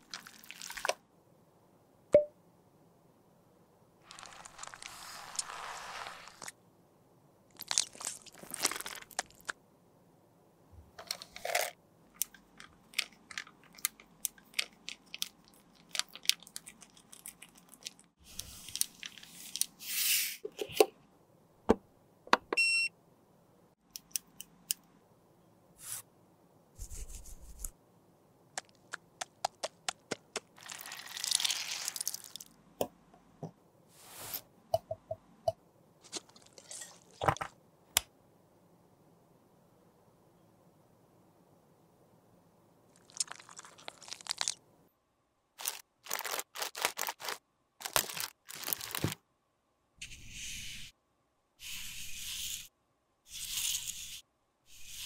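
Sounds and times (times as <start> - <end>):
scraping and crinkling: 4.0 - 6.5, 45.6 - 49.2.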